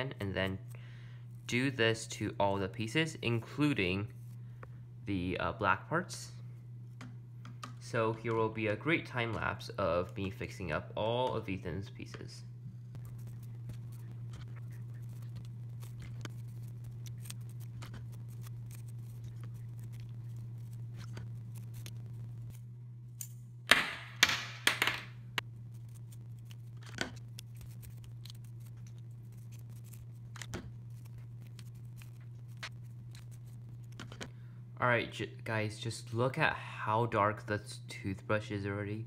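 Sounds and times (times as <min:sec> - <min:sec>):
steady low hum: 0:00.0 - 0:39.0
toothbrush scrubbing plastic: 0:13.0 - 0:22.6, 0:25.7 - 0:34.1.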